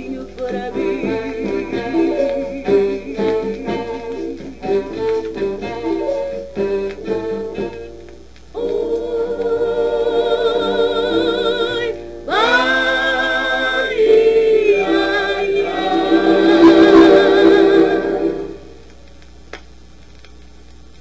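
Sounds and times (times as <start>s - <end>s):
woman singing with vibrato: 0.0s - 4.8s, 8.6s - 18.7s.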